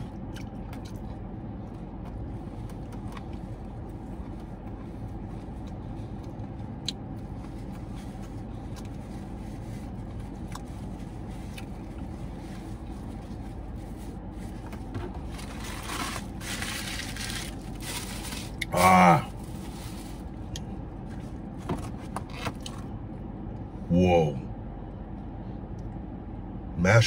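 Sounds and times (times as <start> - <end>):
low hum in car cabin: 0.0 - 27.0
paper bag rustling: 14.4 - 18.6, 19.4 - 20.3.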